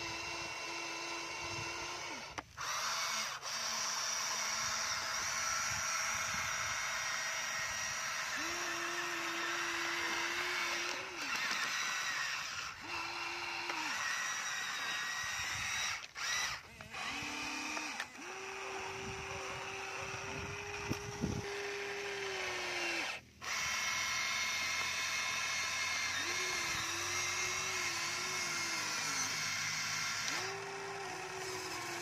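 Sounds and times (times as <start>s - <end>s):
toy excavator motors whirring: 0.0s - 32.0s.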